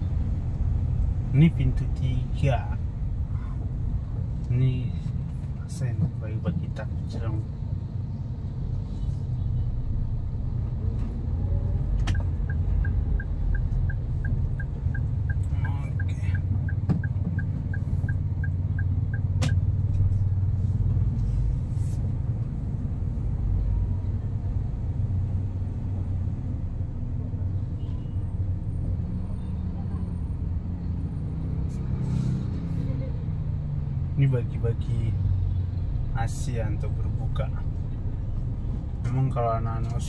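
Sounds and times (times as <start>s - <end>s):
car driving low rumble: 0.0s - 40.0s
turn signal ticking: 11.8s - 20.2s.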